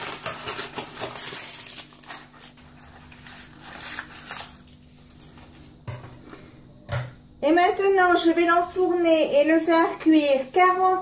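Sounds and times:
scissors snipping paper: 0.0 - 4.7
parchment paper crinkling: 0.0 - 5.8.

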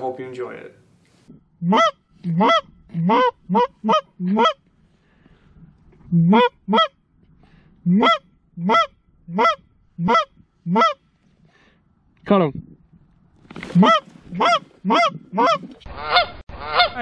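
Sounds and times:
goose honking: 1.6 - 4.6, 6.1 - 7.0, 7.8 - 11.1, 13.8 - 17.0.

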